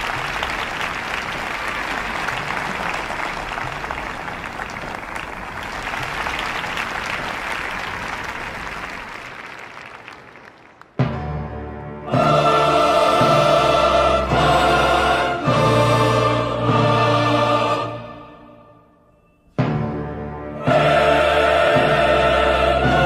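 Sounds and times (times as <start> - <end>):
audience applauding: 0.0 - 11.0
music with loud chord: 11.0 - 23.0.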